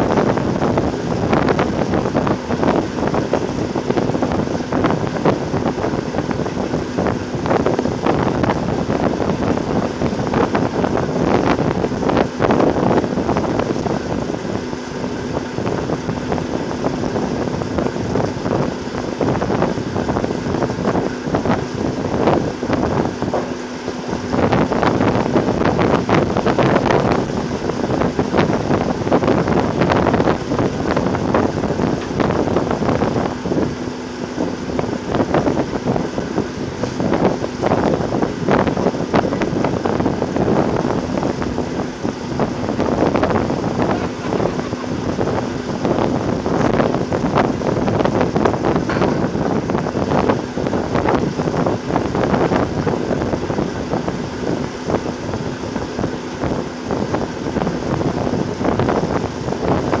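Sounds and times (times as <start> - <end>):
machinery running loudly: 20.6 - 27.2, 40.4 - 51.4.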